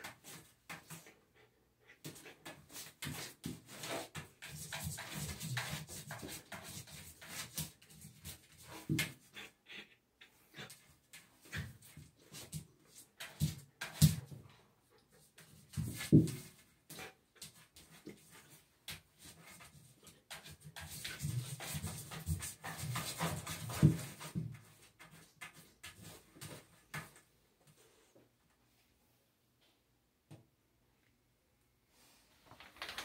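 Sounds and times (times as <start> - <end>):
claws scratching on bathtub: 1.9 - 9.6, 15.3 - 27.2.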